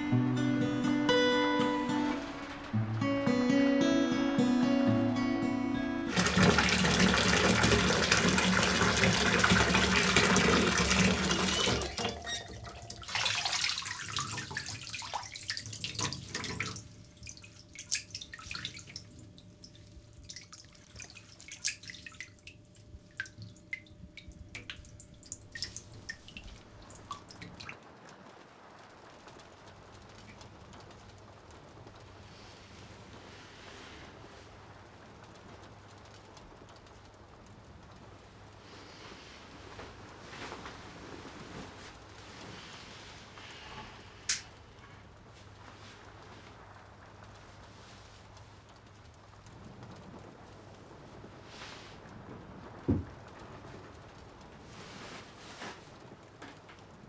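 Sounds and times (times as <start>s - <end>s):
acoustic guitar chord: 0.0s - 7.6s
water running into bathtub: 6.1s - 27.8s
water drips and splashes: 6.1s - 57.0s.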